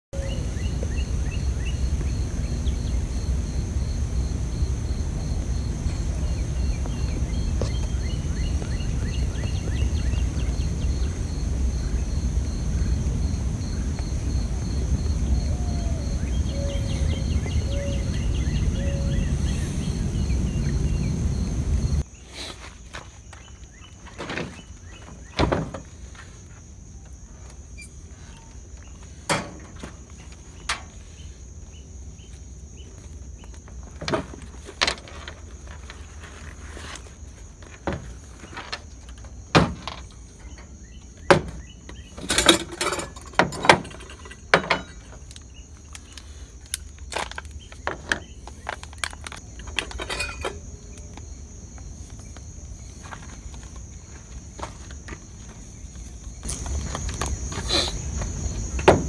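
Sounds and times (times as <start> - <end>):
high insect buzz: 0.2 - 23.8, 50.2 - 59.0
cookware and gear clattering: 42.1 - 45.3, 49.0 - 50.8.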